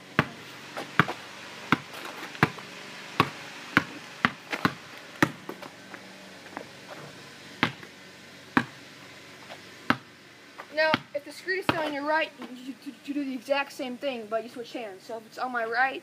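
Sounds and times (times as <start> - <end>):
basketball bouncing on floor: 0.2 - 2.6, 3.2 - 5.4, 7.6 - 7.8, 10.9 - 11.9.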